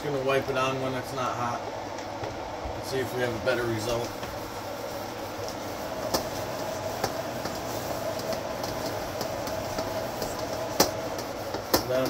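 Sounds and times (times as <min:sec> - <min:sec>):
cooling fan whirring: 0:00.0 - 0:12.0
towel rubbing inside a wok: 0:02.9 - 0:12.0.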